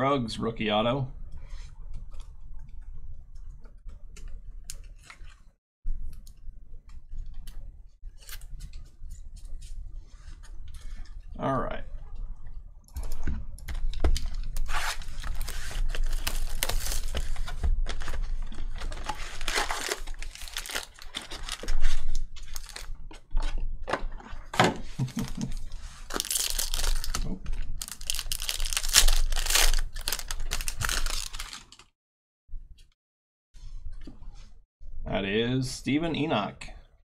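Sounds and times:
foil pack crinkling and tearing: 0:14.2 - 0:22.9, 0:25.0 - 0:31.9
loud rip of foil: 0:14.6 - 0:17.3, 0:19.2 - 0:21.8, 0:26.0 - 0:27.2, 0:27.8 - 0:31.8.

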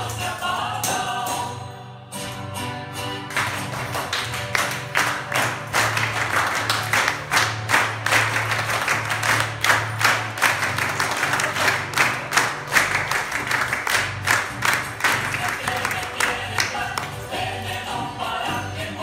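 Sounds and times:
folk dance music: 0:02.3 - 0:19.0
audience clapping in time: 0:03.3 - 0:17.3.

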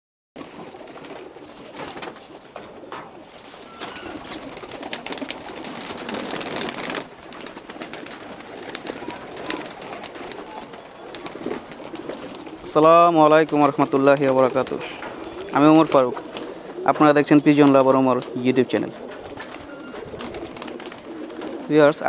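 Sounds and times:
pigeons cooing: 0:00.4 - 0:22.0
wings flapping: 0:00.4 - 0:22.0.

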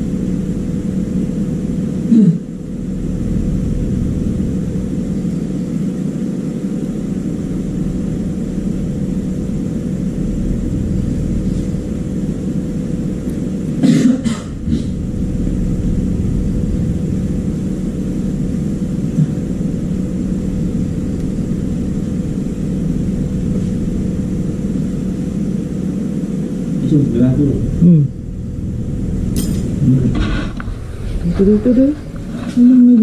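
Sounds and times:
constant hum: 0:00.0 - 0:33.0
low rumble: 0:00.0 - 0:33.0
person coughing: 0:02.1 - 0:02.5, 0:13.8 - 0:15.0.

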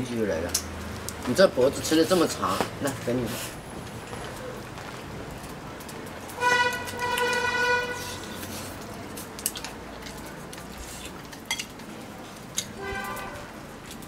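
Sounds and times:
chopsticks clicking against bowls: 0:00.4 - 0:01.3, 0:05.4 - 0:14.0
horn steady note: 0:06.4 - 0:08.2, 0:12.8 - 0:13.6.

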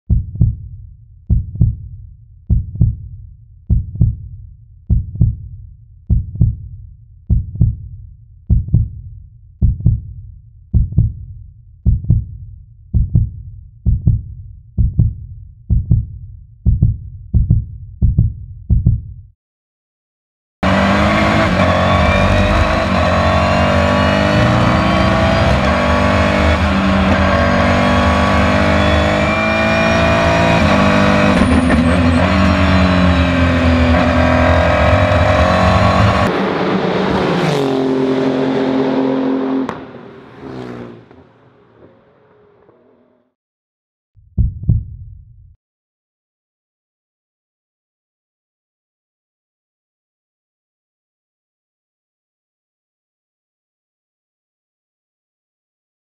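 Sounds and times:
heavy heartbeat thumps: 0:00.1 - 0:19.3, 0:44.2 - 0:45.6
race car engine accelerating: 0:20.6 - 0:43.3.

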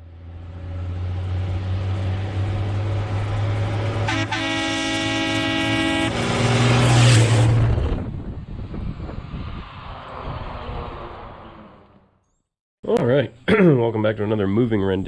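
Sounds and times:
truck engine running: 0:00.0 - 0:06.8
truck horn blast: 0:04.0 - 0:07.2.

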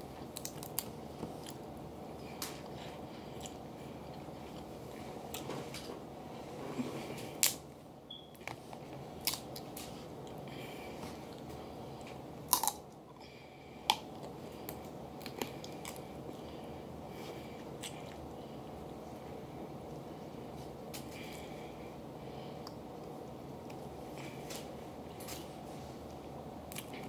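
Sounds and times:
low background noise: 0:00.0 - 0:27.0
crab shells cracking: 0:00.3 - 0:00.9
chewing and mouth sounds: 0:11.3 - 0:13.0, 0:13.9 - 0:16.5, 0:17.8 - 0:18.3.

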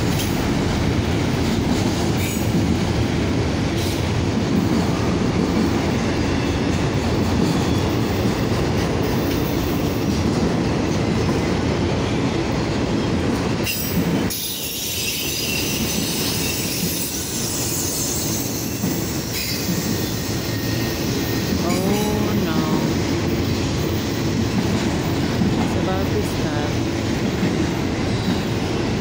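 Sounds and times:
train wheels rumbling on rail: 0:00.0 - 0:29.0
train wheel squeal: 0:06.2 - 0:06.8, 0:07.4 - 0:10.1, 0:13.0 - 0:22.3, 0:28.0 - 0:29.0.

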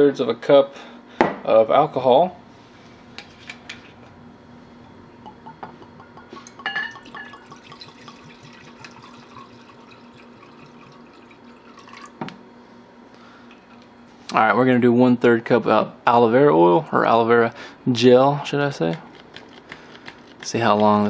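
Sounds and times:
liquid pouring into a glass: 0:06.3 - 0:12.2.

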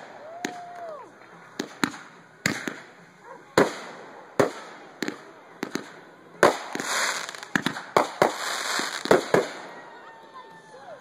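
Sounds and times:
crackling hiss of burning stars: 0:00.0 - 0:10.2
fireworks bangs: 0:01.5 - 0:10.0.

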